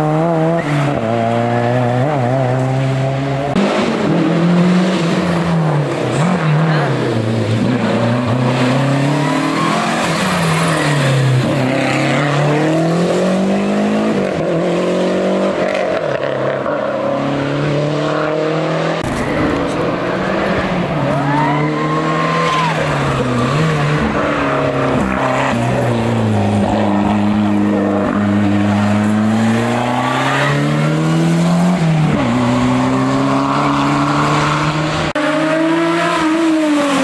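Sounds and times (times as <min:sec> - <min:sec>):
rally car engines revving: 0:00.0 - 0:37.0.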